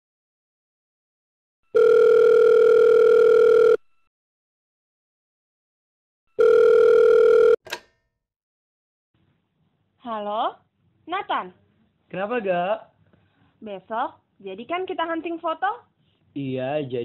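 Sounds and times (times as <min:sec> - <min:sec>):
telephone ringback tone: 0:01.7 - 0:03.8, 0:06.4 - 0:07.6
phone line click: 0:06.4 - 0:08.0.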